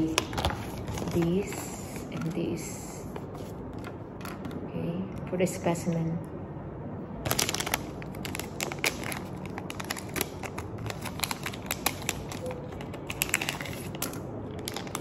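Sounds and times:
foil pouch crinkling and tearing: 7.2s - 15.0s.

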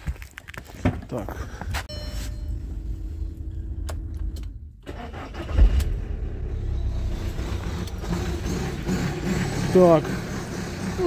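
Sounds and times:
diesel engine starting and idling: 2.5s - 11.0s.

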